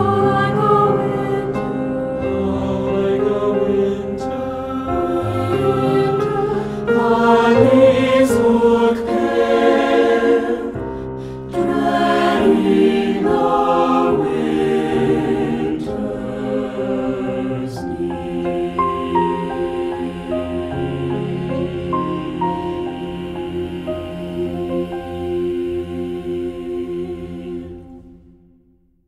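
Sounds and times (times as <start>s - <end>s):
choir singing: 0.0s - 28.6s
piano accompaniment: 0.0s - 28.6s.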